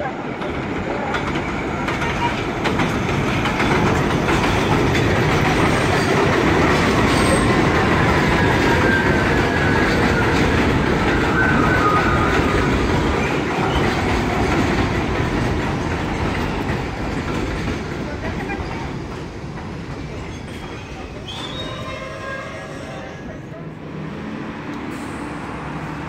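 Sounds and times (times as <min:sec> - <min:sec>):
subway train rumbling past: 0:00.0 - 0:26.0
wheels clacking over rail joints: 0:00.3 - 0:21.6
faint wheel squeal: 0:20.2 - 0:23.4.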